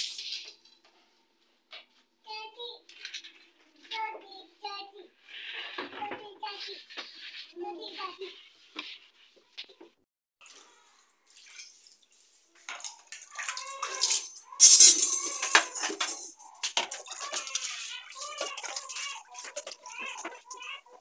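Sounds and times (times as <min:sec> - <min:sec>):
water splashing on stove: 0:10.4 - 0:14.6, 0:15.4 - 0:20.5.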